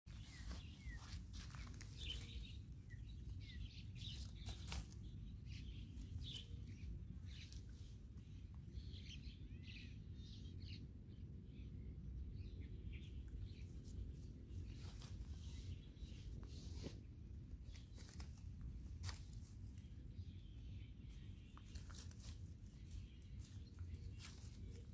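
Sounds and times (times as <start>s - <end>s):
leaves rustling: 0.1s - 2.7s, 3.9s - 8.0s, 17.6s - 20.0s, 21.6s - 24.9s
bird chirps: 0.1s - 18.4s.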